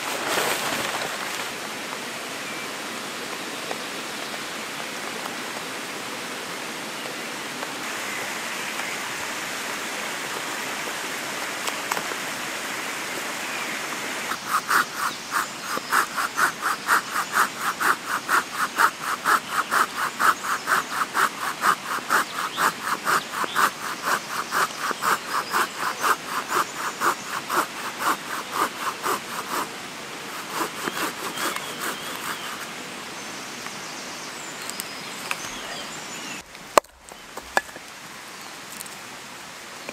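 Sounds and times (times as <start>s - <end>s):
rain on a tarp: 0.0s - 2.1s, 7.6s - 14.3s
hand saw cutting a log: 14.3s - 32.7s.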